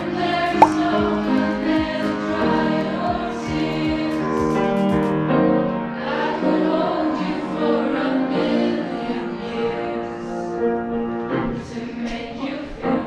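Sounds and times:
choir singing sustained chords: 0.0 - 4.6, 5.6 - 13.0
brief sharp blip: 0.6 - 1.0.

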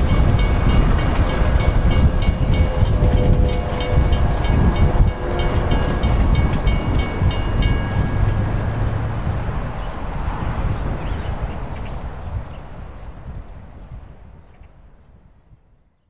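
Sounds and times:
wheels clicking over rail joints: 0.0 - 9.6
faint train horn: 0.0 - 11.5
passenger train rumbling: 0.0 - 14.4.

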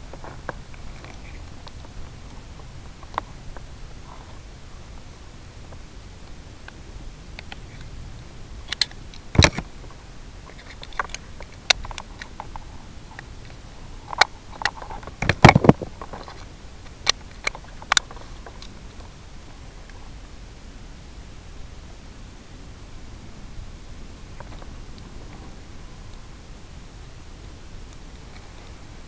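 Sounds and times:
steady hiss: 0.0 - 29.0
sharp clicks and knocks: 8.7 - 9.7.

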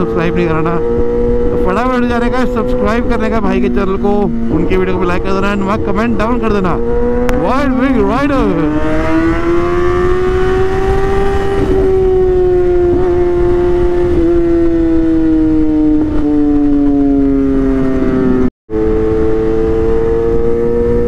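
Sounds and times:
motorbike engine at high revs: 0.0 - 21.0.

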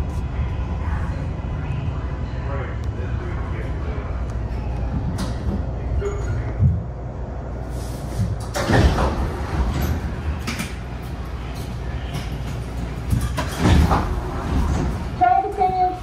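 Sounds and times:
rail car rumble: 0.0 - 16.0
sliding doors thudding: 8.1 - 15.3.

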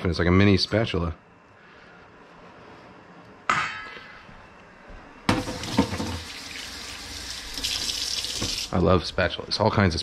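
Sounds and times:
faucet water running into sink: 5.3 - 8.8.

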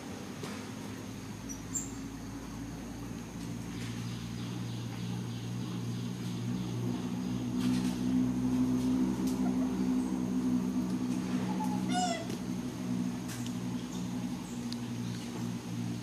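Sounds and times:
steady low hum: 0.0 - 16.0
infant monkey crying: 11.5 - 12.3.

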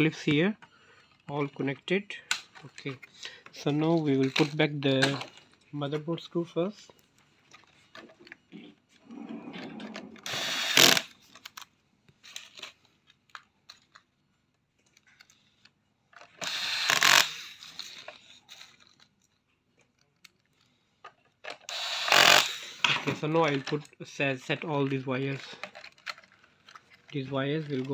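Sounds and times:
electric screwdriver driving screws: 10.2 - 11.1, 16.4 - 18.0, 21.6 - 22.8.

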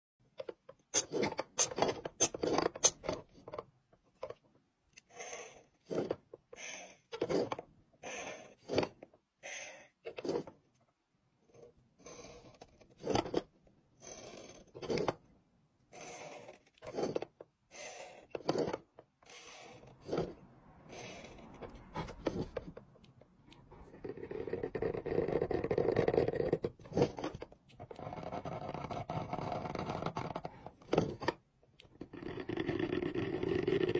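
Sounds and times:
engraving knife scraping: 0.9 - 3.4, 11.5 - 15.2, 15.9 - 31.3.

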